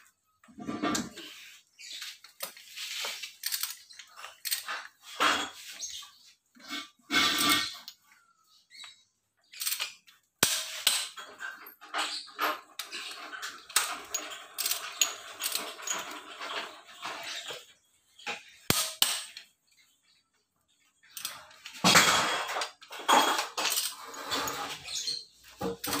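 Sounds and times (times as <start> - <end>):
metal tools clinking and clattering: 0.4 - 8.1, 9.5 - 19.6, 21.0 - 26.0
rattling and clicking: 9.6 - 17.7.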